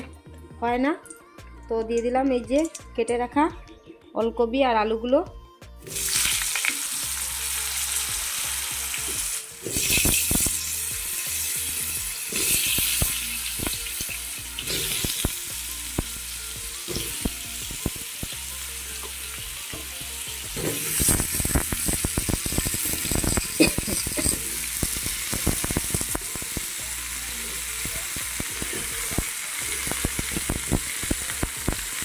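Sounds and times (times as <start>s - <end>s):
vegetables sizzling in hot oil: 5.9s - 32.0s.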